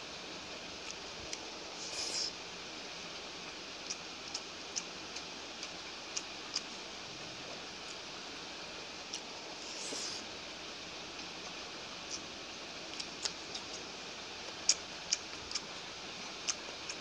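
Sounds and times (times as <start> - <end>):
background hiss: 0.0 - 17.0
soft clicks of eating: 0.8 - 1.4, 3.8 - 6.8, 11.1 - 12.3, 12.9 - 17.0.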